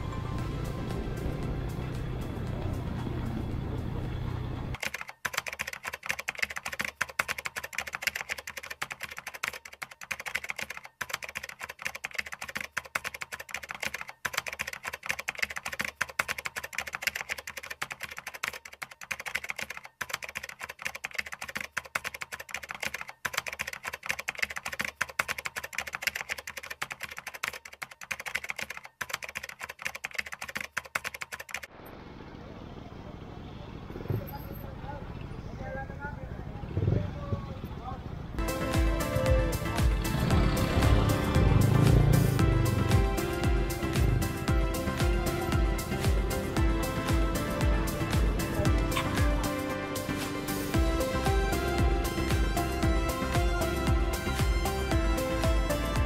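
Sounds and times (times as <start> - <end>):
keyboard typing clicks: 4.7 - 31.7.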